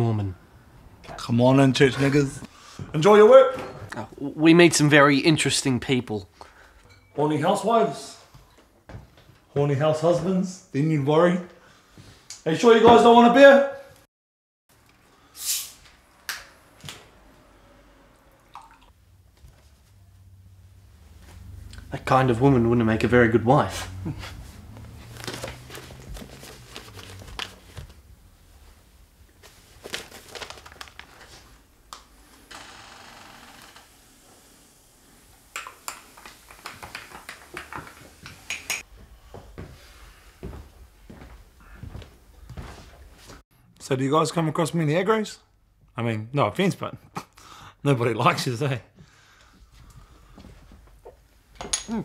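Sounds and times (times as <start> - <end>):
footsteps on floor: 8.3 - 9.6, 37.8 - 43.4
bottle gas hiss: 15.3 - 15.9
cups and cutlery clinking: 51.6 - 52.0.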